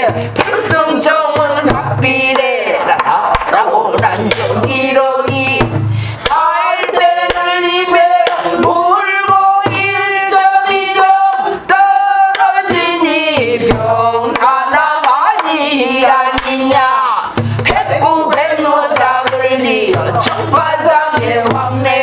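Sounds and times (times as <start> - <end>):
woman singing held bending notes: 4.5 - 22.0.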